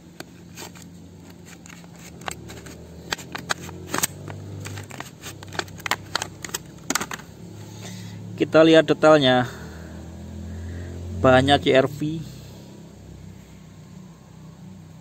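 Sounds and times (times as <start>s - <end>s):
plastic clicks and snaps: 0.2s - 7.3s.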